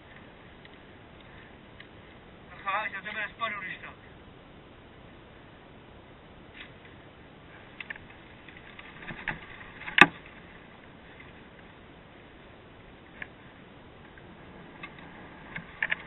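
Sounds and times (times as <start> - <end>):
faint background noise: 0.0 - 16.0.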